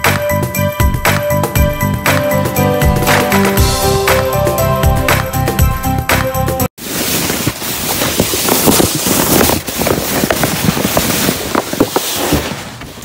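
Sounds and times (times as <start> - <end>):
sled scraping over snow: 6.8 - 13.0
snow crackling and crunching: 6.8 - 13.0.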